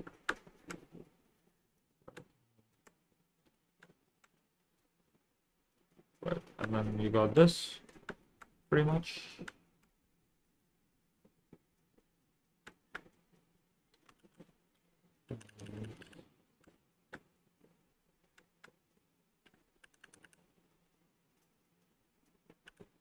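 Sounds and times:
faint clicks and taps: 0.0s - 7.0s, 11.2s - 23.0s.

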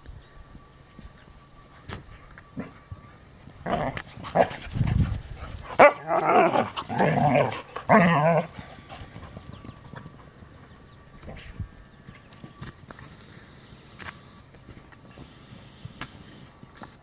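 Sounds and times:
dogs growling: 3.6s - 4.7s, 5.6s - 10.0s
dog barking: 5.8s - 6.6s.

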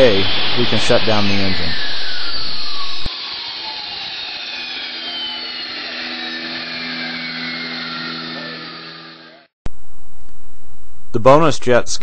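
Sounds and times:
turbojet whining spooling down: 0.0s - 9.6s.

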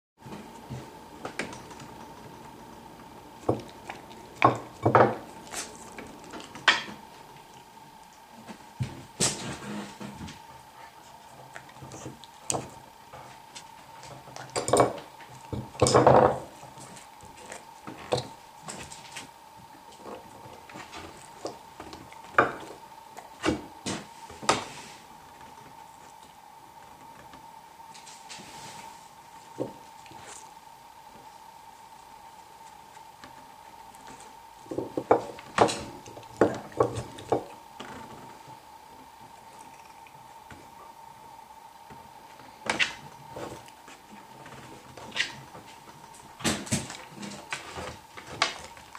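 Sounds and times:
faint steady hum: 0.2s - 48.9s
dog crunching carrots: 0.7s - 8.5s, 39.3s - 40.4s.

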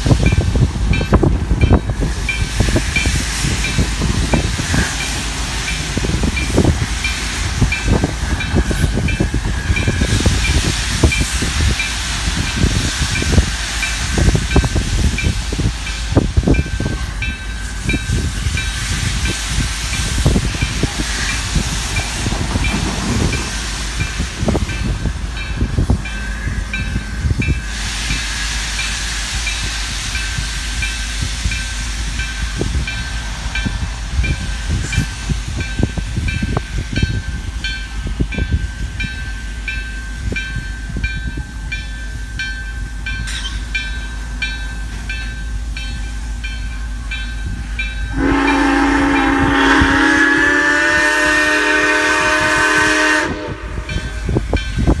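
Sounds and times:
locomotive bell ringing: 0.2s - 3.9s, 13.3s - 19.4s, 33.6s - 49.7s, 53.8s - 55.0s
steam whistle blast: 48.1s - 54.2s.

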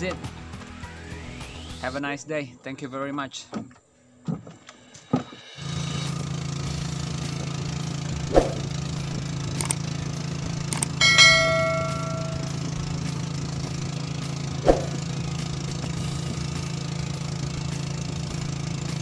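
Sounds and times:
small boat engine running: 5.6s - 19.0s
bright bell chime: 11.0s - 12.6s.

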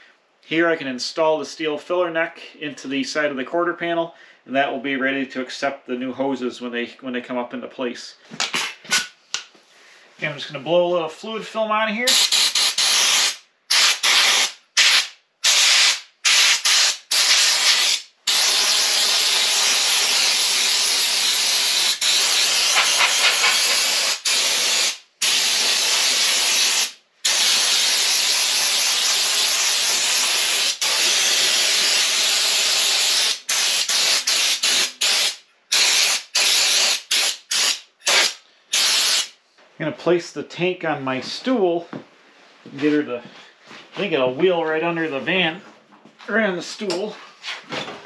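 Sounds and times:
air spray gun hissing: 12.1s - 39.3s.

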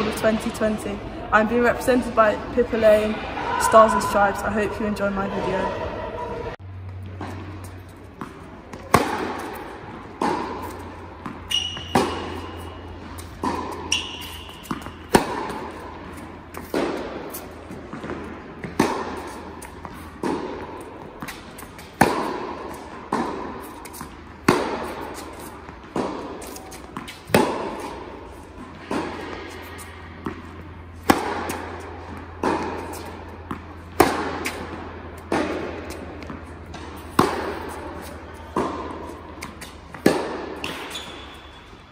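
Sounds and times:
steady low hum: 0.0s - 40.6s
tennis ball hit and bouncing: 6.8s - 41.9s
shoe squeaks on court: 11.4s - 15.1s, 40.6s - 41.8s.

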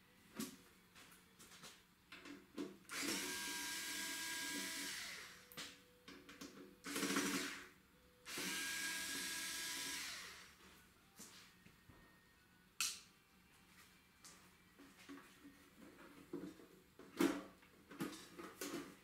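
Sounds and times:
cordless electric screwdriver whine: 2.9s - 5.5s, 6.9s - 7.6s, 8.3s - 10.6s.

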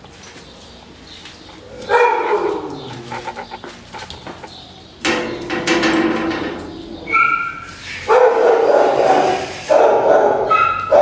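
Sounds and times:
dog barking: 1.9s - 3.4s, 7.1s - 11.0s.

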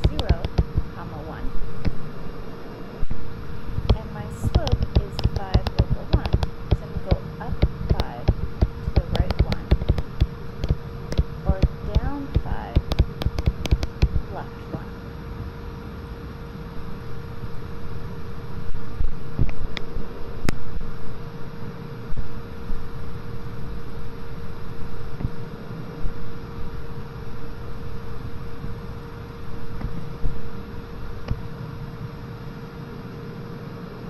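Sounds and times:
stylus tapping tablet screen: 0.0s - 0.8s, 3.9s - 14.2s
steady background hum: 0.0s - 34.0s.

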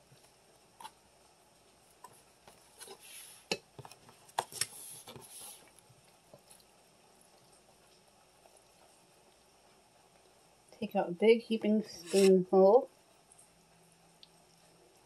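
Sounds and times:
metal ladle scraping pot: 12.0s - 12.4s.

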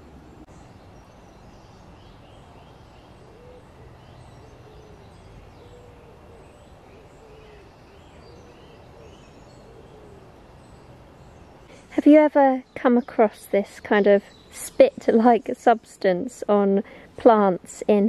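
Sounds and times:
lower bird call: 0.0s - 12.0s
small birds chirping: 0.0s - 18.0s.

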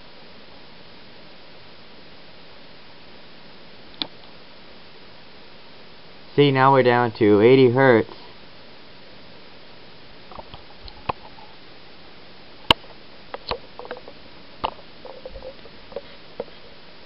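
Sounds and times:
low steady hiss: 0.0s - 17.0s
faint rustling: 13.5s - 16.9s.

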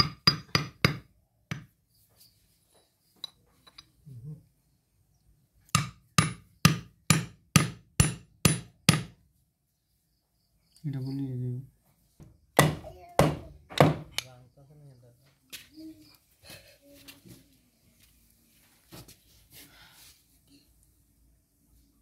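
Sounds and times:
sharp metallic knocks: 5.8s - 9.2s.

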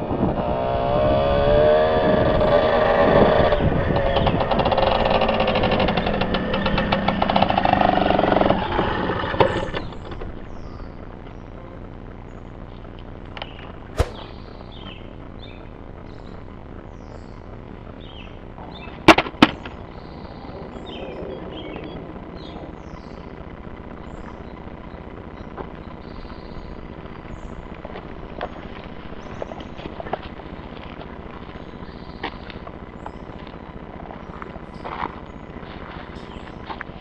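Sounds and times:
steady outdoor hiss: 4.8s - 37.0s
sharp loud cracks: 14.0s - 15.0s.

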